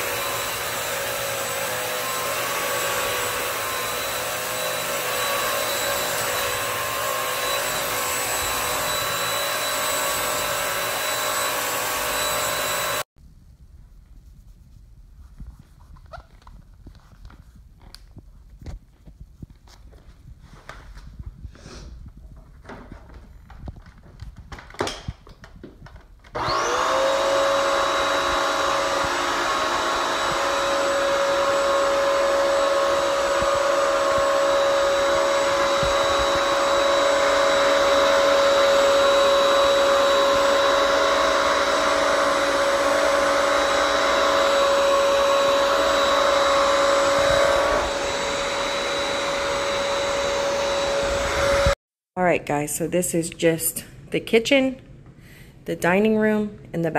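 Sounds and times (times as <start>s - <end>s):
vacuum motor whining: 0.0s - 13.1s, 26.2s - 51.8s.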